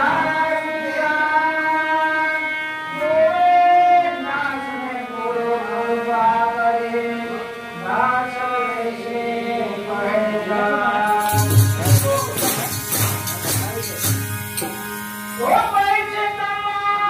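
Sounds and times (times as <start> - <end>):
man singing devotional song: 0.0 - 17.0
instrumental accompaniment: 11.1 - 16.5.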